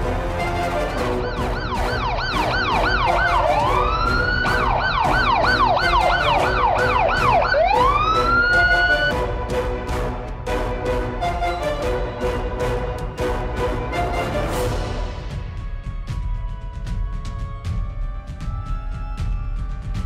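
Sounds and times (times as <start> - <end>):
police siren: 0.0 - 9.2
background music: 0.0 - 20.0.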